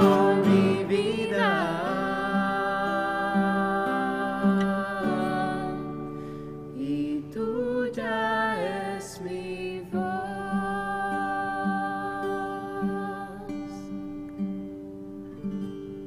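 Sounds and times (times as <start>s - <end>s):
person singing: 0.0s - 14.0s.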